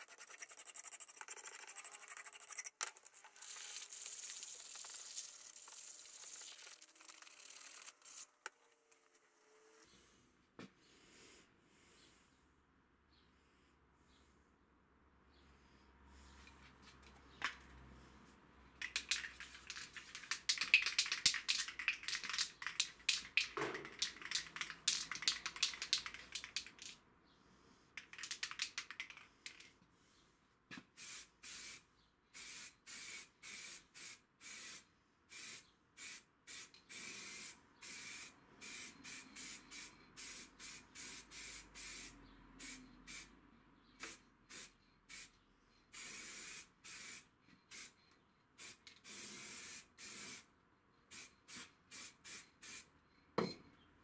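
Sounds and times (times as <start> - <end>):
spray paint can spraying: 0.0 - 8.3, 18.8 - 27.0, 28.0 - 29.7, 31.0 - 31.8, 32.4 - 43.3, 44.0 - 45.3, 45.9 - 47.9, 48.6 - 50.4, 51.1 - 52.9
fast rattling clicks: 18.8 - 27.0, 28.0 - 29.7.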